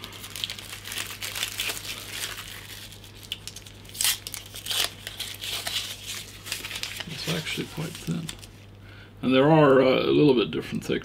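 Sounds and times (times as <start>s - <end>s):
packaging crinkling: 0.0s - 8.7s.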